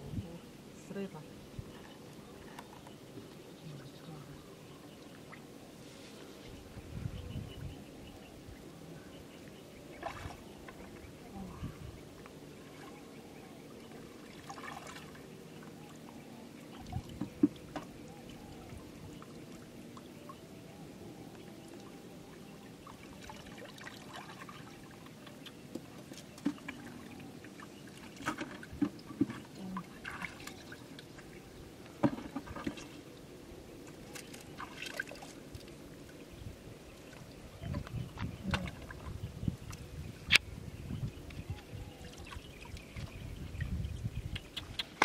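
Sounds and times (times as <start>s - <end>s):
river water sloshing: 8.6s - 20.4s, 21.4s - 39.8s
water splashes: 9.9s - 11.7s, 13.8s - 16.0s, 21.6s - 33.3s, 33.9s - 36.2s, 36.8s - 40.4s.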